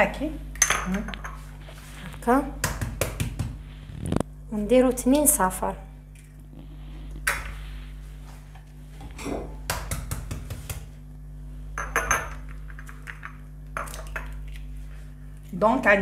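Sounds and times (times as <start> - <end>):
eggs cracked against a saucepan: 9.6 - 10.9, 11.8 - 14.6.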